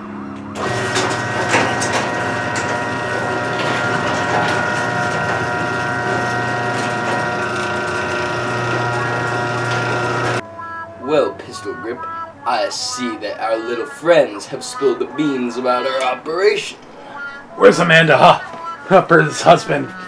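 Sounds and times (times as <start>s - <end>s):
electric garage door opener running: 0.3s - 10.4s.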